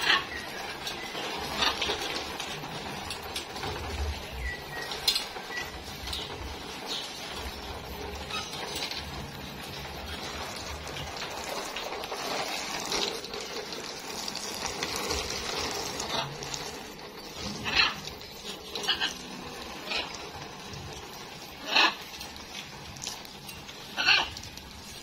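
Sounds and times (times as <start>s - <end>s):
hose water spraying and splashing: 0.0s - 25.0s.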